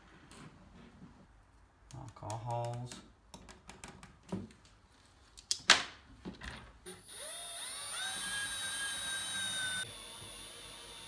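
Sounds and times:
power drill drilling into drywall: 6.9s - 11.0s.

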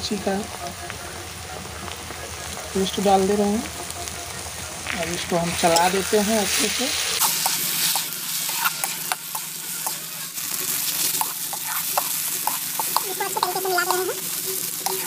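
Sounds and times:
onions sizzling in hot oil: 0.0s - 15.0s
metal spatula scraping pan: 5.5s - 15.0s.

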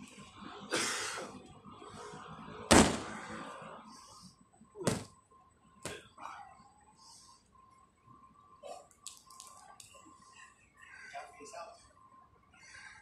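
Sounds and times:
boxing gloves smacking pads: 2.7s - 3.1s, 4.8s - 5.1s.

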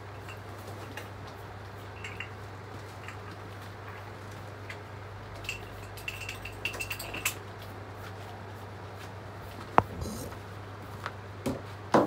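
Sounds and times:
steady low hum: 0.0s - 11.4s
light clinks and clicks: 1.9s - 7.5s.

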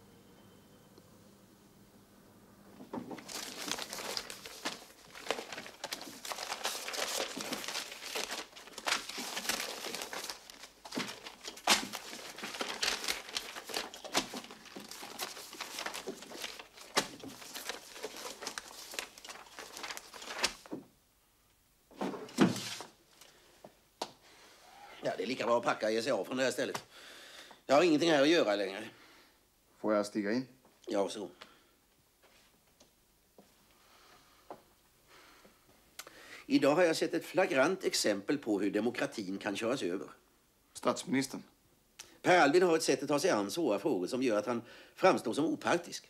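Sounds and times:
paper rustling and crumpling: 3.0s - 20.8s, 22.3s - 23.4s.

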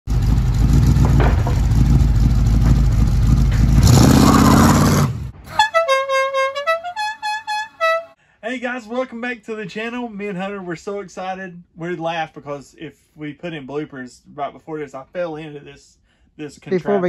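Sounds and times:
loud vehicle noise: 0.1s - 5.8s
car horn playing a tune: 5.5s - 8.2s.

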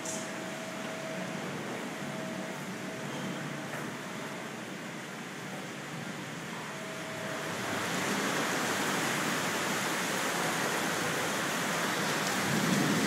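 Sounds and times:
gusting wind: 7.1s - 13.0s
heavy rain pouring on pavement: 7.2s - 13.0s.

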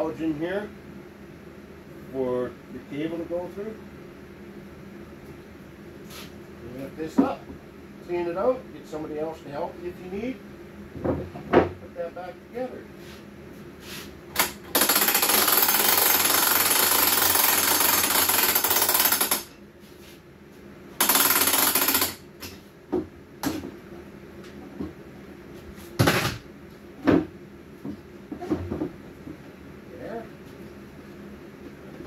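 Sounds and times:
handheld power tool running: 14.3s - 19.5s, 21.0s - 22.2s.

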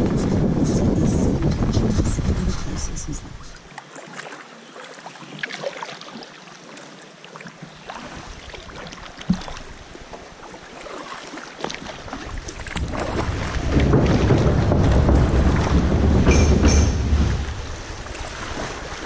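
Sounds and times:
water lapping against kayak hull: 0.0s - 19.0s
knock on hull: 12.8s - 17.6s.

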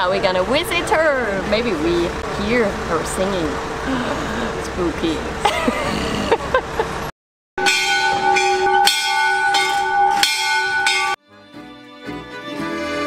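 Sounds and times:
small bell ringing: 7.6s - 11.2s.

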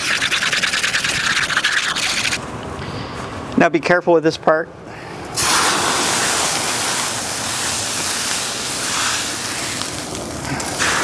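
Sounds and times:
water sizzling on hot griddle: 5.4s - 11.0s.

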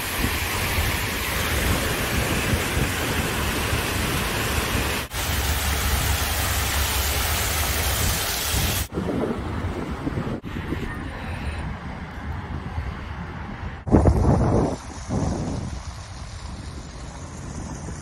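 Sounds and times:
fountain water cascading: 0.0s - 8.9s, 14.1s - 18.0s.

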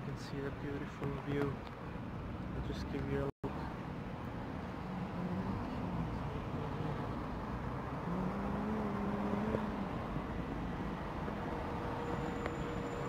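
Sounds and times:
traffic on wet streets: 0.1s - 13.0s
passing vehicle engine hum: 2.3s - 13.0s.

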